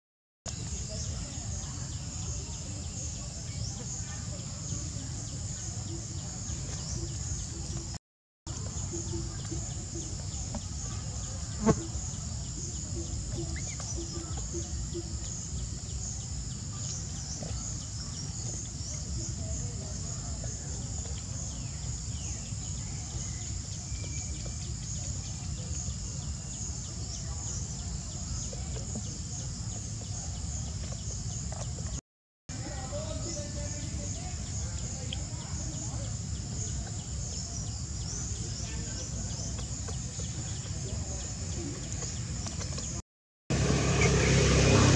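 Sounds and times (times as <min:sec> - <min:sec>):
insects droning: 0:00.5 - 0:44.9.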